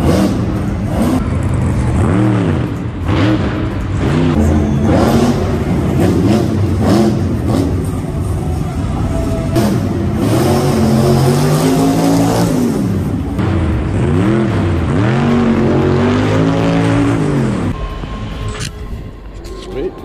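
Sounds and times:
truck engine revving hard: 0.0s - 17.8s.

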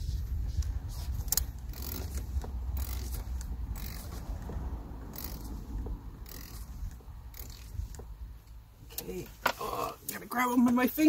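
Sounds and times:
steady low rumble: 0.0s - 9.4s
wrench metallic clicks and scrapes: 0.5s - 10.2s.

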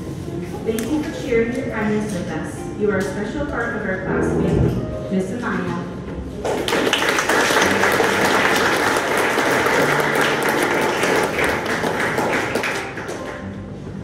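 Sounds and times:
audience applauding: 6.4s - 13.6s.

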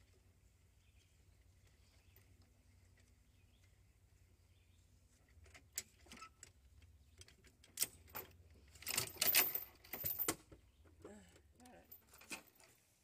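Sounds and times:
metal chain clinking: 7.7s - 10.5s.

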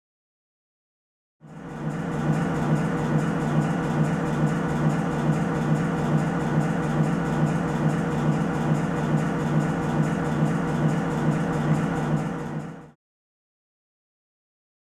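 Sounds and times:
paint mixer humming with pulse: 1.4s - 13.0s.

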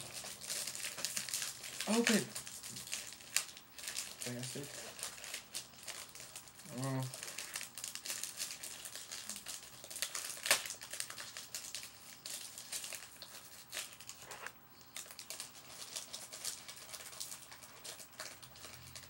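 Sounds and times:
packaging crinkling and crackling: 0.0s - 19.0s.

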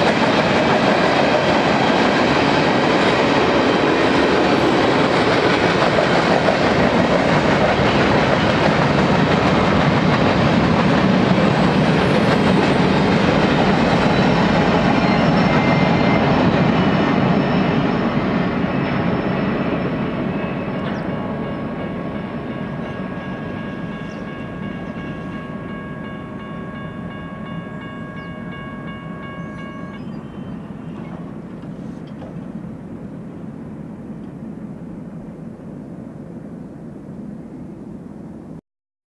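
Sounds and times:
freight train rumbling: 0.0s - 38.6s
high-pitched multi-tone whine: 11.4s - 34.8s.

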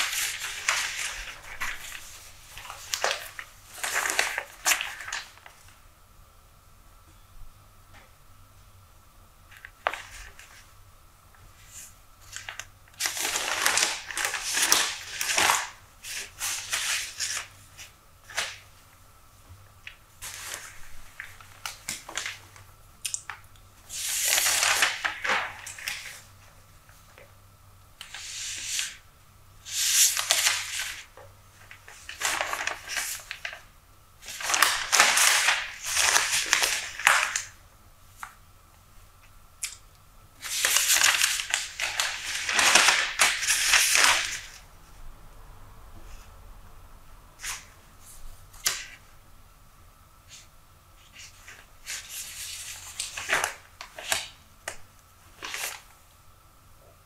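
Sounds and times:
newspaper pages rustling: 0.0s - 5.6s, 9.5s - 10.8s, 11.5s - 18.8s, 19.8s - 22.7s, 23.8s - 27.3s, 29.6s - 38.4s, 40.4s - 44.6s, 50.3s - 56.0s
soft paper crinkles: 0.0s - 5.8s, 29.6s - 39.3s, 50.3s - 56.0s.

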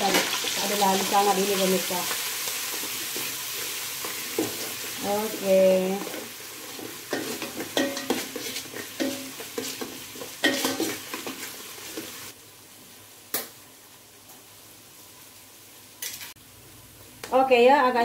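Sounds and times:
paste sizzling in hot oil: 0.0s - 12.7s
spatula scraping and knocking pot: 6.0s - 12.1s.

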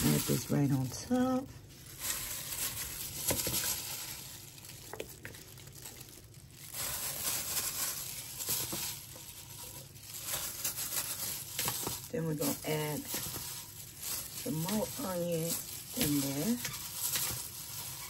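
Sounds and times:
plastic glove crinkling: 0.0s - 18.0s.

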